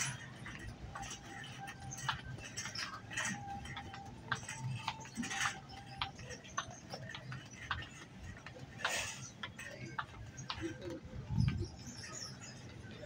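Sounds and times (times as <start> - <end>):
low store hum: 0.0 - 13.0.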